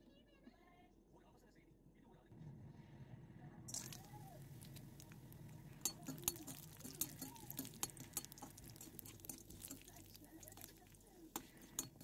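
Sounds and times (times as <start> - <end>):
faint frying hiss: 3.6 - 12.0
metal spatula scraping pan: 5.7 - 12.0.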